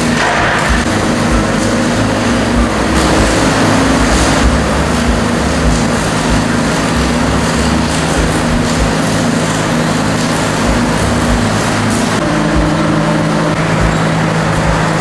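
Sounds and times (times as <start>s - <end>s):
machinery humming: 0.0s - 15.0s.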